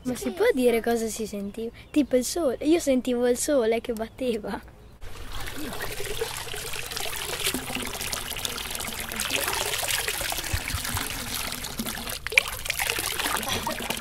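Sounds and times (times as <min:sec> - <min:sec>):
water trickling into fountain basin: 0:05.0 - 0:14.0.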